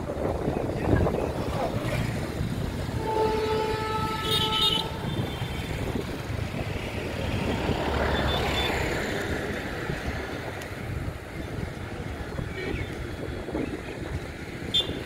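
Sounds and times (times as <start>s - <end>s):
wind: 0.0s - 15.0s
distant train horn: 2.9s - 5.2s.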